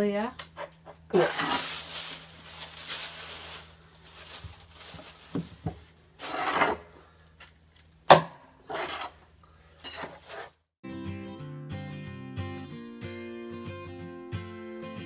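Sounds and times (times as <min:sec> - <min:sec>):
acoustic guitar music: 0:10.8 - 0:15.0.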